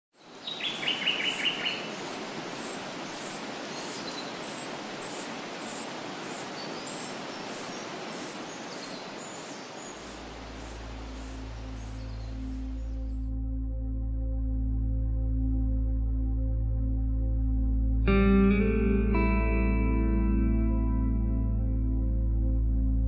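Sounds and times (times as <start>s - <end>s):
bird trill: 0.2s - 13.2s
music with low sustained tones: 10.2s - 23.0s.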